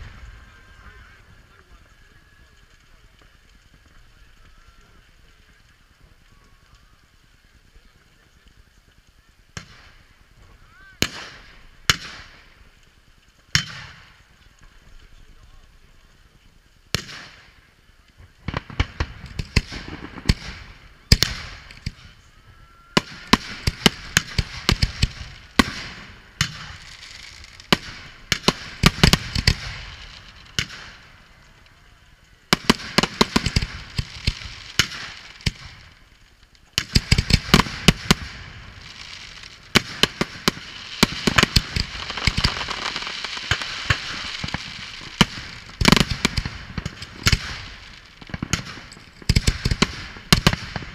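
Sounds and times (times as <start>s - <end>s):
fireworks bangs and crackling: 0.0s - 50.9s.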